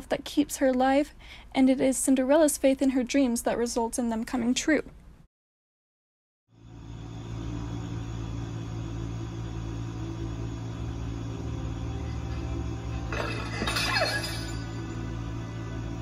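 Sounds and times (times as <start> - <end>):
low rumble with a hum: 6.5 - 16.0.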